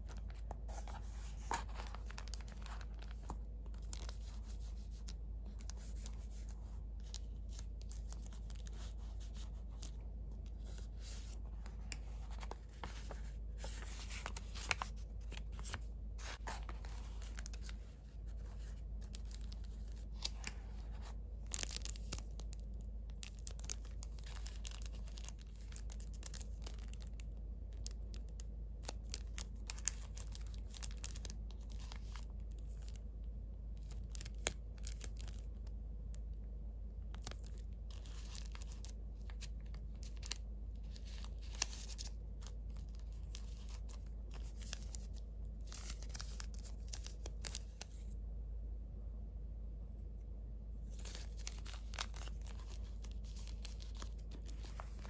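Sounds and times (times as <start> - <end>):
paper and plastic rustling: 0.0 - 22.6, 23.2 - 27.2, 28.8 - 33.0, 37.2 - 48.1, 50.8 - 55.0
sharp plastic crackles: 11.7 - 33.0, 33.8 - 35.7.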